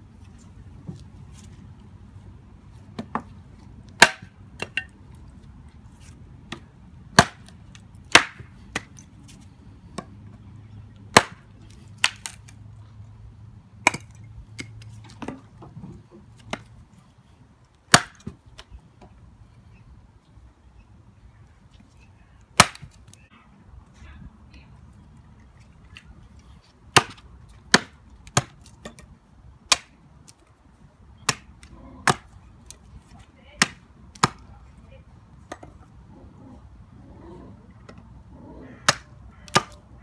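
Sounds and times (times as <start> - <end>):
chopper chopping wood: 4.0 - 4.3, 6.5 - 7.5, 8.1 - 8.9, 11.1 - 11.4, 17.9 - 18.3, 22.6 - 22.9, 26.9 - 28.6, 31.2 - 32.3.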